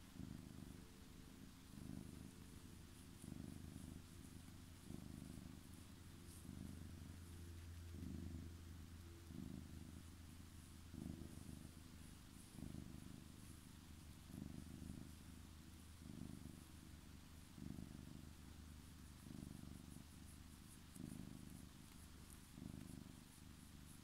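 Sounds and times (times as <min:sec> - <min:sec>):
cat purring: 0:00.0 - 0:24.0.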